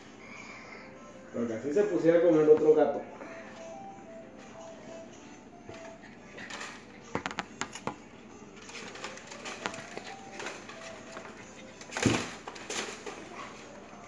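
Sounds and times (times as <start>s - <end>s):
animals scuffling on tile floor: 5.6s - 14.0s.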